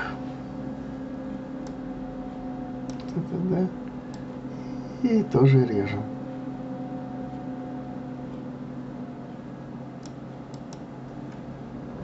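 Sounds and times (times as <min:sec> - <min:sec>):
low electrical hum: 0:00.0 - 0:12.0
computer mouse clicking: 0:02.9 - 0:03.2, 0:10.0 - 0:10.9.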